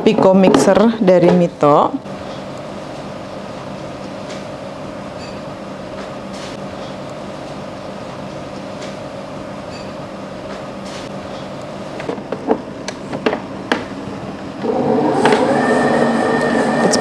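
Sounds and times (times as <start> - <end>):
mixer motor hum: 14.4 - 17.0
mixer beating: 14.6 - 17.0.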